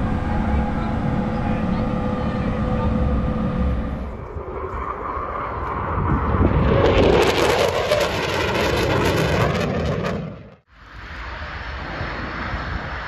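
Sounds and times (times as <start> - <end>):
mechanical hum with held tones: 0.0 - 5.1
jet engine roar: 0.0 - 13.0.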